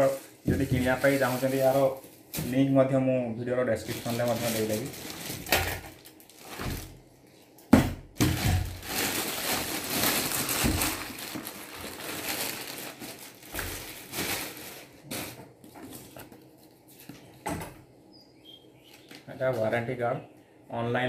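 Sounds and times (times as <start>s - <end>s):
plastic bag crinkling: 0.0s - 2.6s, 3.7s - 7.0s, 8.2s - 16.7s.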